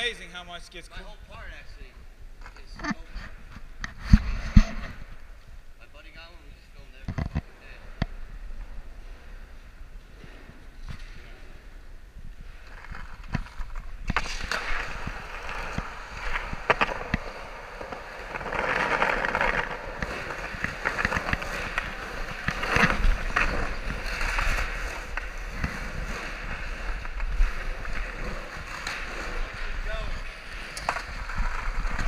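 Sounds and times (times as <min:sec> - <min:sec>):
skateboard wheels rolling: 0:06.6 - 0:32.0
skateboard clacking: 0:13.1 - 0:32.0.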